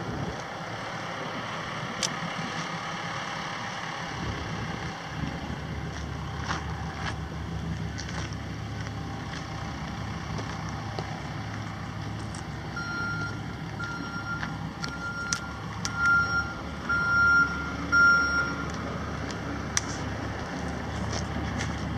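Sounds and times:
truck engine idling: 0:00.0 - 0:21.9
backup alarm beeping: 0:12.7 - 0:18.8.

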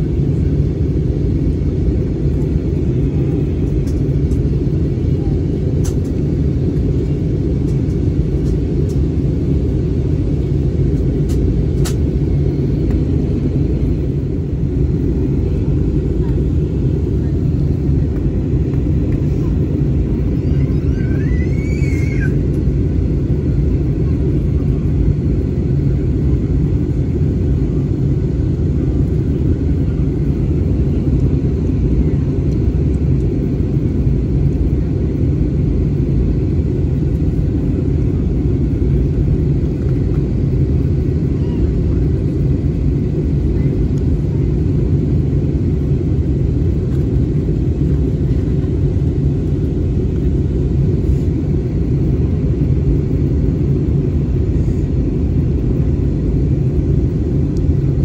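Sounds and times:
jet engine drone in cabin: 0:00.0 - 0:58.0.

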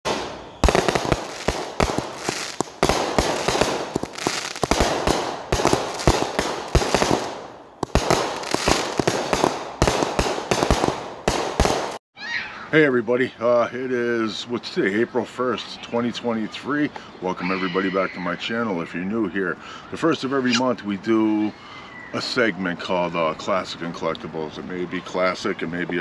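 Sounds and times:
crackling star bursts: 0:00.0 - 0:12.0
fireworks bangs: 0:00.0 - 0:12.0.

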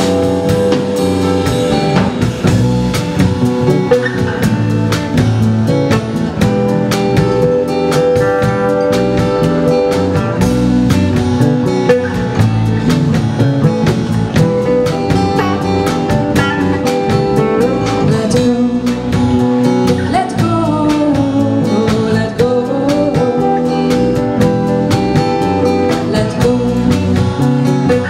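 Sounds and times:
acoustic guitars strummed: 0:00.0 - 0:28.0
drum kit beat: 0:00.0 - 0:28.0
electric bass: 0:00.0 - 0:28.0
person singing: 0:17.4 - 0:24.4, 0:25.6 - 0:28.0.

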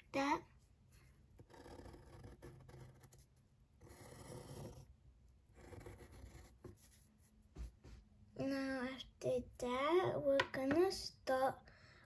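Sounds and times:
pencil scratching on paper: 0:00.6 - 0:07.3.

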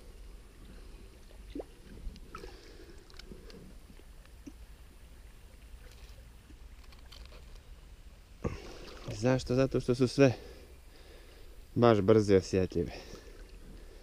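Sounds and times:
muffled water sloshing and gurgling: 0:00.4 - 0:04.6, 0:08.4 - 0:09.6.

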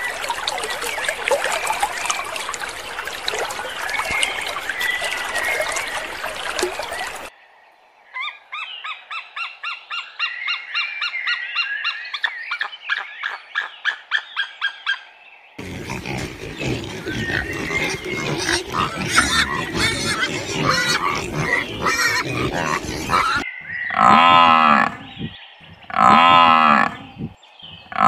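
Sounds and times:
dense animal chirps: 0:15.6 - 0:28.0.

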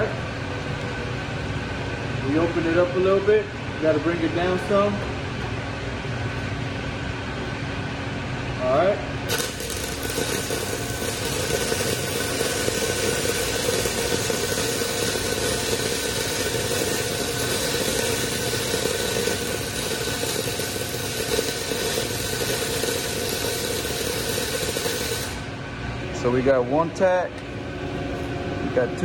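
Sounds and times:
welding arc crackling hiss: 0:09.3 - 0:25.6.

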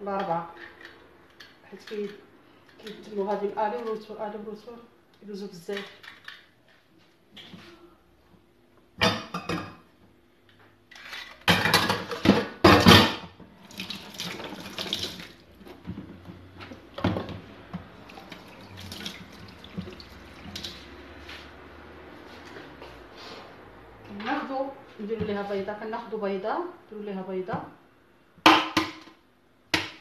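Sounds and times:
metal kitchenware clattering in sink: 0:11.0 - 0:13.3
tap running water into sink: 0:13.7 - 0:15.3, 0:18.0 - 0:20.8.

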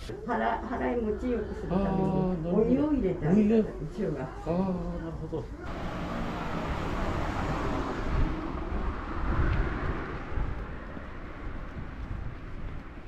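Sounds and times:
car passing: 0:05.7 - 0:13.0
wind buffeting microphone: 0:05.7 - 0:13.0.

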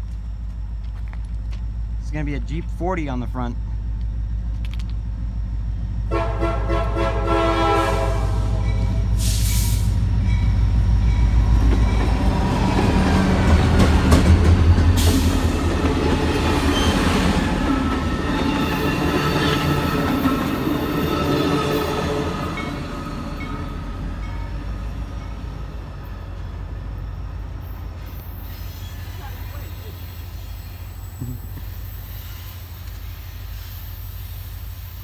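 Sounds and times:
diesel locomotive engine rumble: 0:00.0 - 0:35.0
train cars rolling past: 0:00.0 - 0:35.0
train horn: 0:06.1 - 0:09.0.

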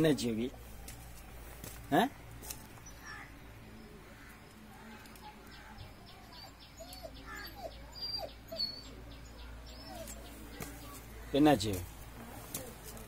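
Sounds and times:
dog whimpering: 0:06.2 - 0:09.0, 0:09.8 - 0:10.3.

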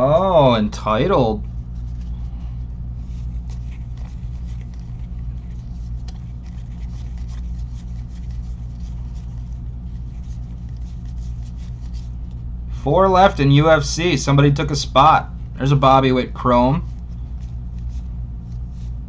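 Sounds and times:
low hum: 0:00.0 - 0:19.0
card packs crinkling and clicking: 0:03.4 - 0:12.3.

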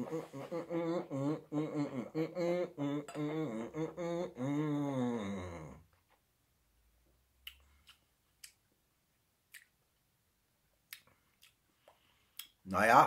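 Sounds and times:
wet mouth clicks and lip smacks: 0:07.4 - 0:08.6, 0:09.5 - 0:09.8, 0:10.9 - 0:11.6, 0:12.4 - 0:12.6.

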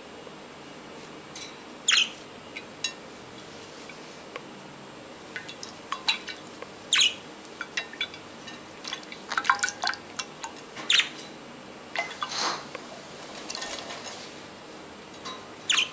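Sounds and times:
budgies chirping: 0:01.9 - 0:02.2, 0:06.9 - 0:07.3, 0:10.9 - 0:11.2, 0:15.7 - 0:15.9
water dripping and splashing: 0:05.3 - 0:06.5, 0:07.6 - 0:10.6.

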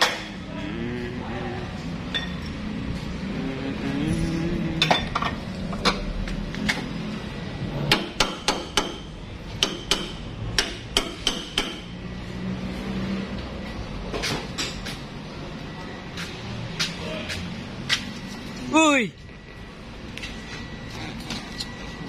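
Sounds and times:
tools striking metal: 0:07.9 - 0:12.0.

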